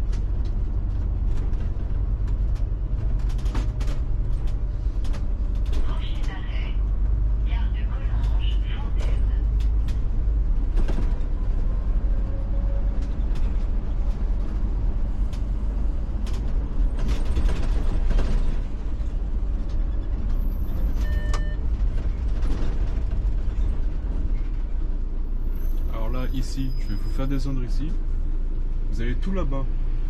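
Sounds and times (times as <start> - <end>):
bus body creaking and rattling: 0.0 - 30.0
bus engine and road rumble: 0.0 - 30.0
short electronic beep: 21.0 - 21.6.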